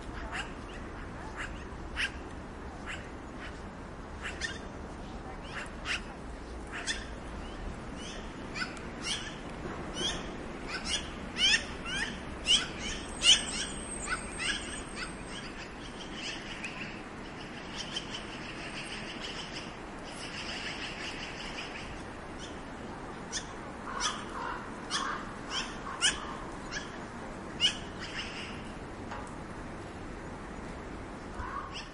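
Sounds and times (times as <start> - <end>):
magpie calling: 2.8 - 3.6, 4.2 - 4.7, 6.7 - 9.4, 10.0 - 22.6, 23.3 - 27.0, 27.6 - 28.6, 31.4 - 31.9.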